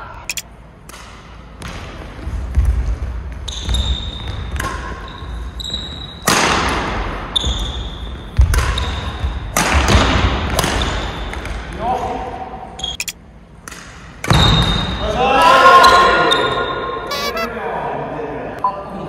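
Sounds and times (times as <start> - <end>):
shoes squeaking on floor: 17.1 - 17.5.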